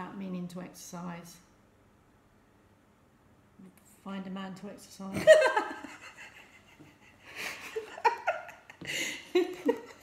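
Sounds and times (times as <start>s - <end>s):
women laughing: 5.2s - 10.0s.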